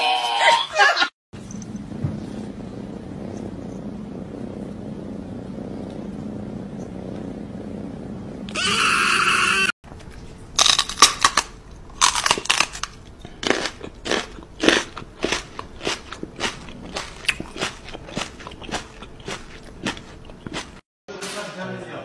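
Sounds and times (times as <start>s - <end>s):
crunchy food chewing: 10.0s - 20.8s.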